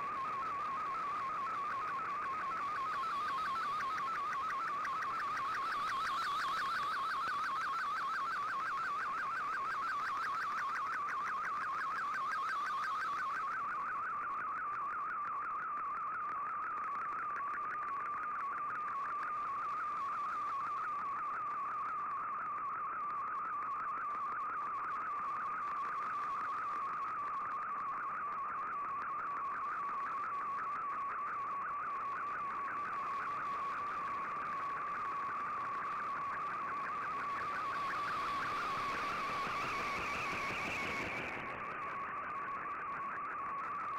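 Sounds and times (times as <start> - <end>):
warbling digital radio tone: 33.2 - 43.9
radio hiss: 36.0 - 42.6.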